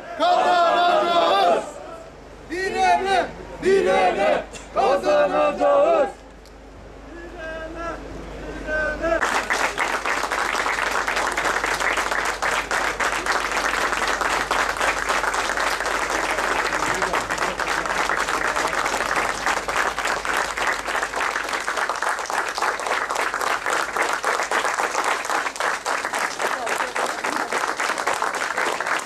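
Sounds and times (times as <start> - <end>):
crowd clapping: 9.2 - 29.0.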